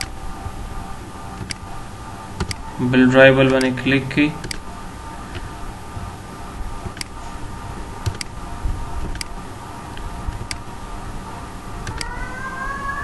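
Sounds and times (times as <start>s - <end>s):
background hiss and hum: 0.0s - 13.0s
faint rising whine: 0.0s - 13.0s
computer mouse clicks: 1.4s - 1.6s, 2.4s - 2.7s, 6.8s - 7.2s, 8.0s - 8.4s, 9.0s - 9.4s, 11.8s - 12.1s.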